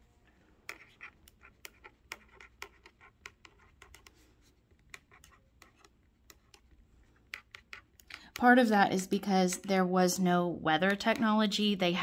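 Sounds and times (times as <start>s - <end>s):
felt-tip pen scratching on paper: 0.7s - 8.0s.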